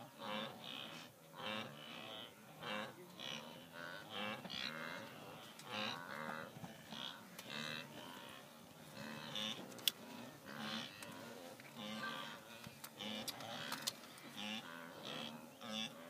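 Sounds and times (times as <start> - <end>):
wildebeest lowing grunts: 0.0 - 16.0.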